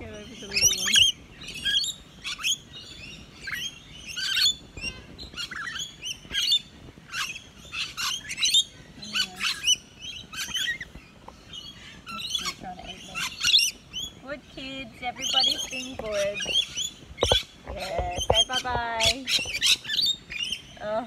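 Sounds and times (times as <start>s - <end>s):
lorikeets chirping and squawking: 0.0s - 21.0s.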